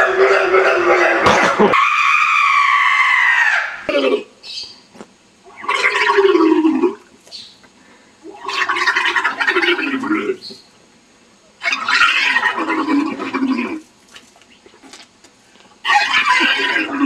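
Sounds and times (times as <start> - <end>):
gargling scream: 0.0 - 4.3, 5.5 - 7.1, 8.3 - 10.4, 11.6 - 13.8, 15.8 - 17.0.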